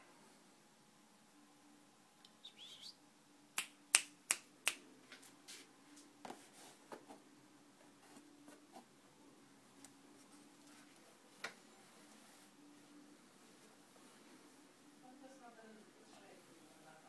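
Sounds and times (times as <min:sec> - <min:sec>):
finger snaps: 0:03.6 - 0:04.8.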